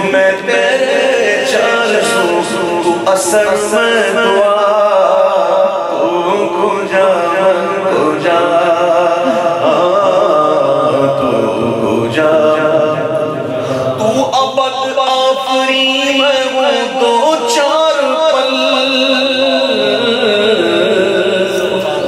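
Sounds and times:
man singing devotional song: 0:00.0 - 0:22.0.

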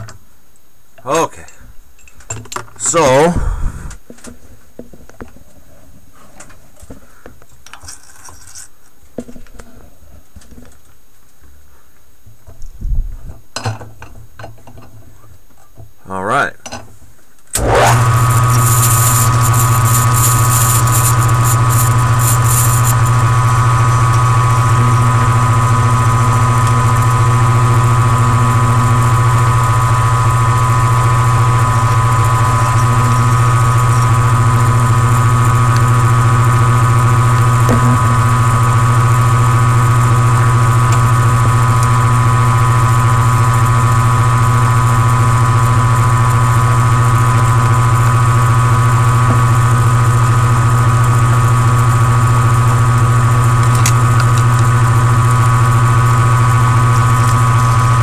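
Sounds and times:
milling machine motor whine: 0:17.6 - 0:58.0
scratchy high hiss: 0:18.4 - 0:23.1.

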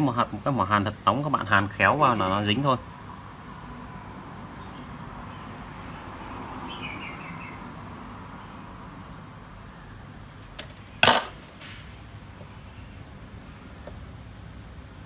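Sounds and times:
workshop room noise: 0:00.0 - 0:06.6, 0:10.1 - 0:14.4
metal tool clinking on metal: 0:02.1 - 0:02.5.

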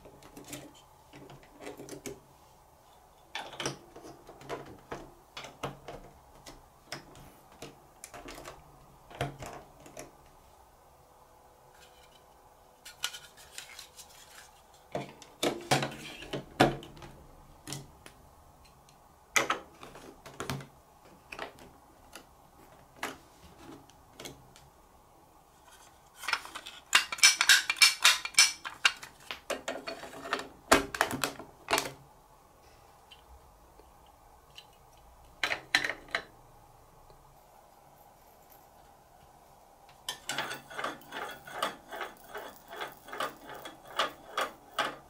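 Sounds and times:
plastic blocks clicking together: 0:26.2 - 0:29.9
plastic pieces clattering: 0:26.2 - 0:31.9.

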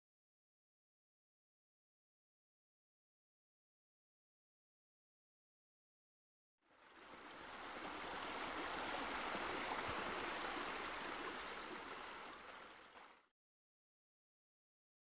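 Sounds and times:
running splashing water: 0:06.8 - 0:13.2.

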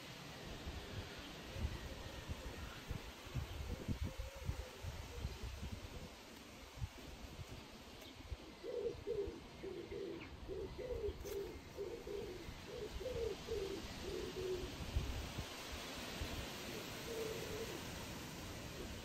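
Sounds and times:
pigeon cooing: 0:08.4 - 0:14.8, 0:16.7 - 0:18.0.

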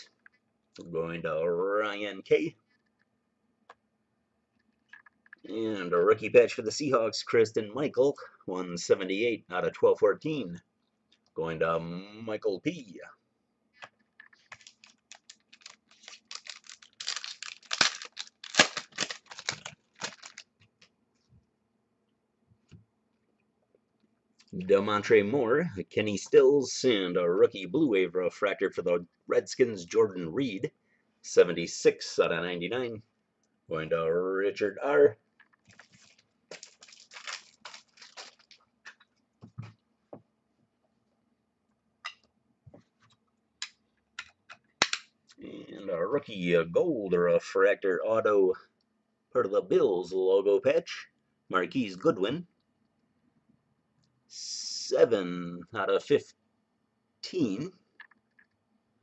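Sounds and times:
foil wrapper crinkling and tearing: 0:14.4 - 0:20.5, 0:35.6 - 0:38.6.

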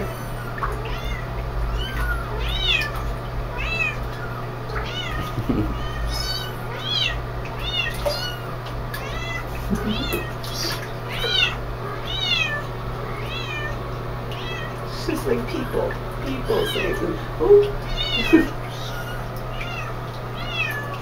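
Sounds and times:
kittens mewing: 0:00.0 - 0:21.0
steady low hum: 0:00.0 - 0:21.0.

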